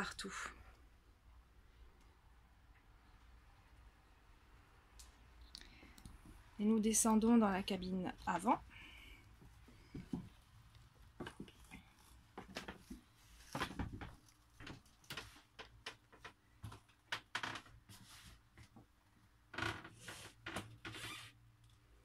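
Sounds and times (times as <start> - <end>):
rustling: 5.8 - 18.8.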